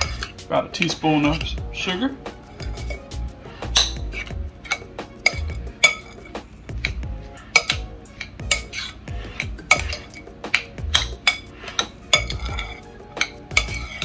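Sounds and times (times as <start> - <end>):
metal spoon clinking on glass: 4.6 - 6.4, 7.6 - 9.0, 9.6 - 14.0.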